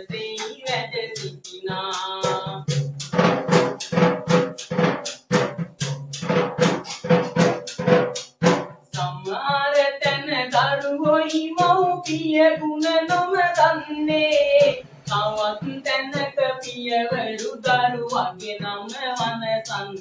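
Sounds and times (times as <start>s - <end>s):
man singing: 0.0s - 3.2s, 9.0s - 20.0s
jingle tambourine strokes: 2.0s - 9.1s.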